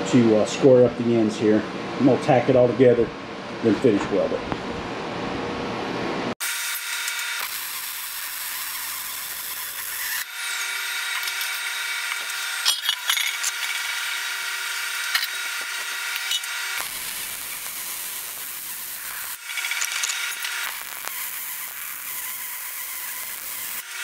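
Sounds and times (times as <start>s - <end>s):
welding arc crackling: 6.4s - 24.0s.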